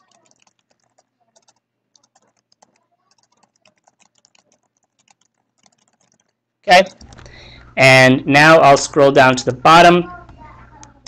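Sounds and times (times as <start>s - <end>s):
faint keyboard typing: 0.0s - 7.4s.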